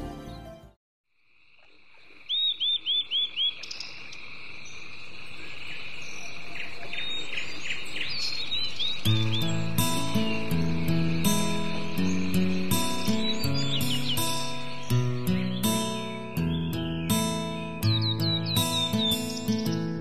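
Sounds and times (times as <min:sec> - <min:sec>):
music: 0:00.0 - 0:00.8, 0:09.0 - 0:20.0
bird chirping: 0:01.6 - 0:20.0.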